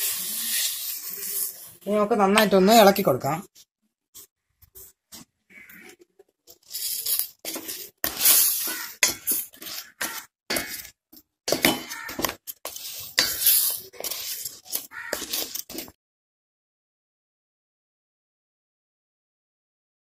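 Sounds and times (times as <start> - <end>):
spatula scraping a steel pot: 0.0 - 1.8, 5.6 - 16.0.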